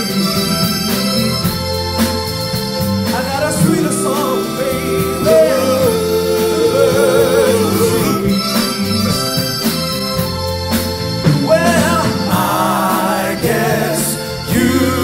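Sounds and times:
bass guitar: 0.0s - 15.0s
drums: 0.0s - 15.0s
keyboard: 0.0s - 15.0s
male vocal group singing: 3.1s - 9.0s, 11.3s - 15.0s.

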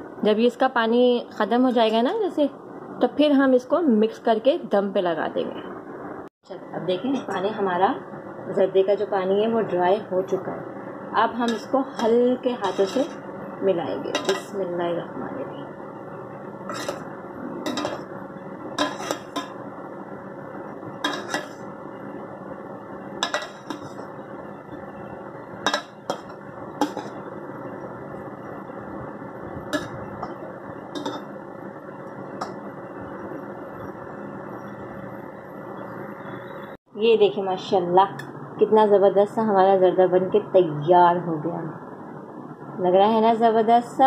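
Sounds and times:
metal spoon scraping metal pot: 11.4s - 13.3s, 14.1s - 14.6s, 16.6s - 18.1s, 18.7s - 19.6s, 21.0s - 21.7s, 23.2s - 24.1s, 25.6s - 27.2s, 31.0s - 31.3s.

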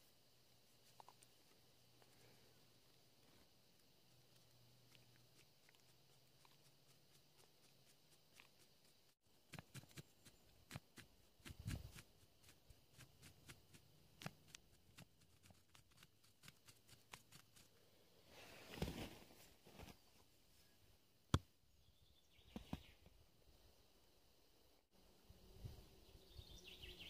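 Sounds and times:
rustle: 0.0s - 20.8s.

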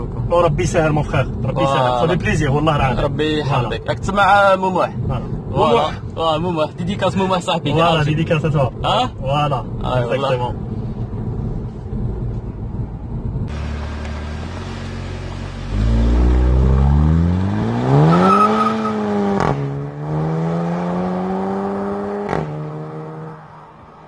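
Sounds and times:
car engine revving: 13.5s - 23.4s.

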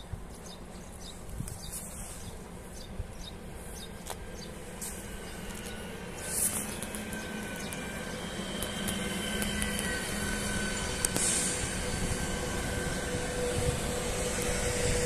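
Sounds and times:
electric train rolling past: 2.0s - 15.0s.

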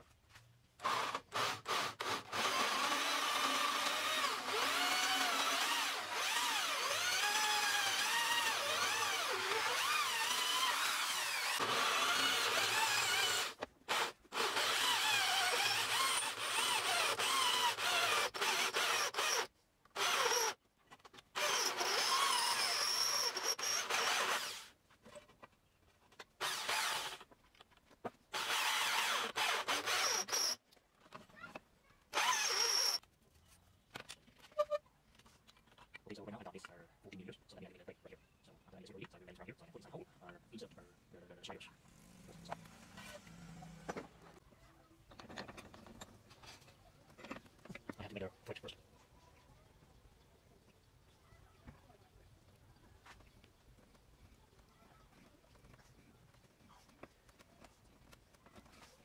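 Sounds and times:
drill press boring into metal: 32.2s - 33.0s.

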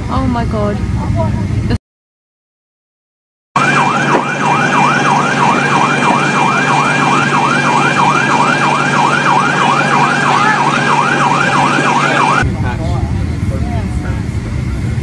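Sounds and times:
steady low hum: 0.0s - 1.8s, 3.7s - 15.0s
siren yelping: 3.6s - 12.4s.

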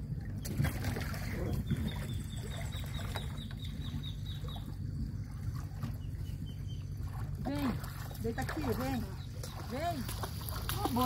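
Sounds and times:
water lapping against a dock: 0.0s - 11.0s
small splashes: 0.3s - 11.0s
bird calling: 1.4s - 7.3s.

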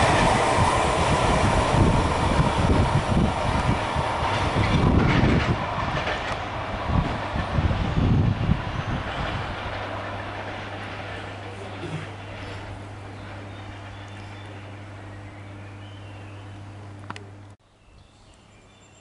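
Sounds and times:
freight train wheels clattering on rails: 0.0s - 14.4s.

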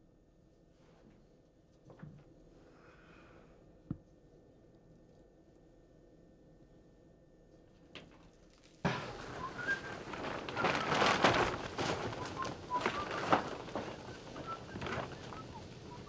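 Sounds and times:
people trampling through undergrowth: 8.8s - 16.0s.

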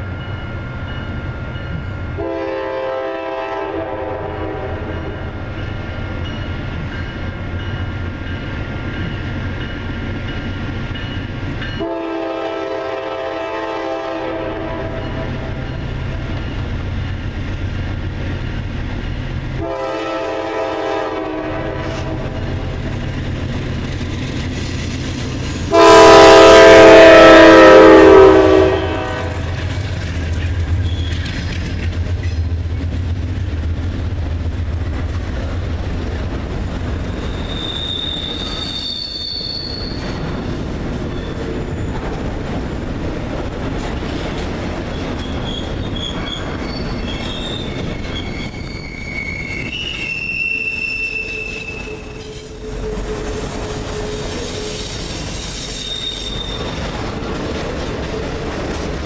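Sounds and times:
locomotive air horn blasts: 2.2s - 5.3s, 11.8s - 15.5s, 19.6s - 22.4s, 25.7s - 29.5s.

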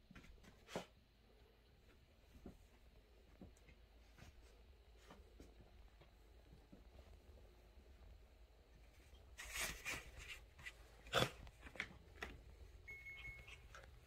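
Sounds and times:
thin high tone: 12.9s - 14.0s.

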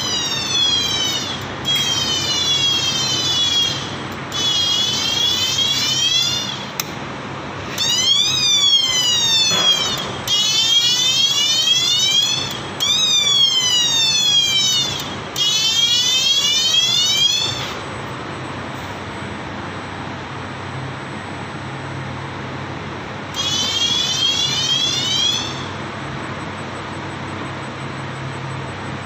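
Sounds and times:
servo drive whine: 0.0s - 7.0s, 7.6s - 19.1s.

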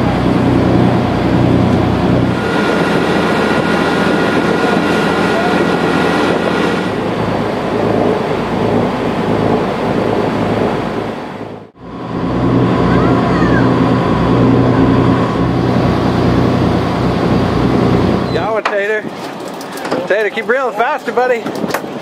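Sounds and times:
wind on microphone: 0.0s - 19.3s
boat engine running: 0.0s - 22.0s
rushing wake water: 0.0s - 22.0s.

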